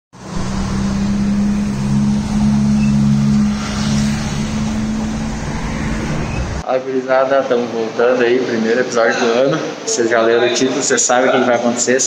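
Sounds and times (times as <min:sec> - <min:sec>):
low engine hum: 0:00.2 - 0:06.6.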